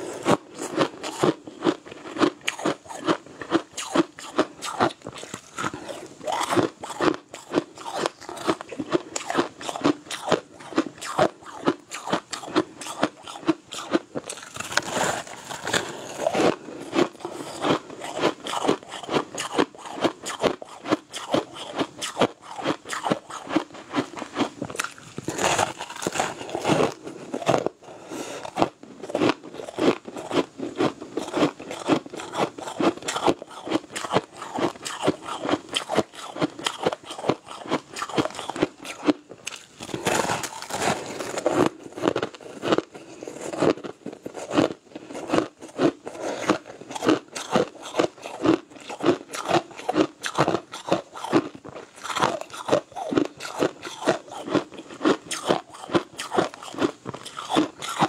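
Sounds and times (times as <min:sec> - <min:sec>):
crushed ice crunching: 0:14.3 - 0:16.6, 0:24.8 - 0:26.9, 0:38.2 - 0:41.7.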